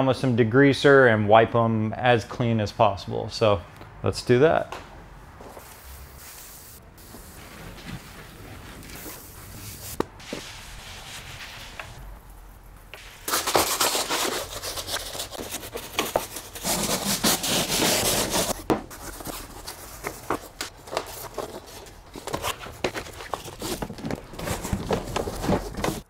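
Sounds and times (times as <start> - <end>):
rubbing and scraping: 7.0 - 26.0.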